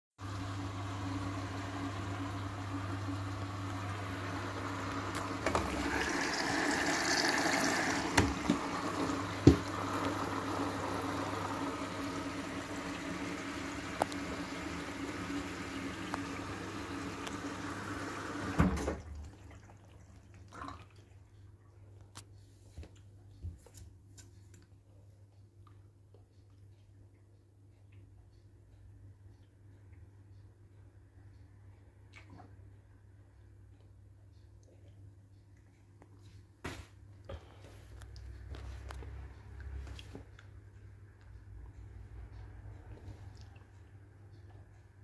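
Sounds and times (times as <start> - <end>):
water rushing in washing machine: 0.2 - 21.7
low electrical hum: 0.2 - 45.0.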